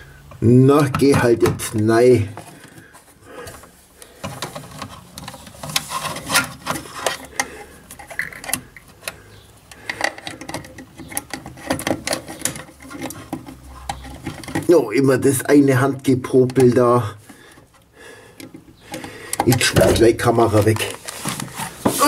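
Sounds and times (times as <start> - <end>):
plastic clicks and rattles: 3.5 - 14.7.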